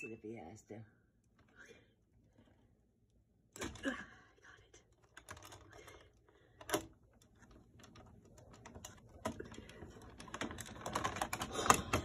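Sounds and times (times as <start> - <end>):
plastic clicks and rattles: 5.0 - 12.0.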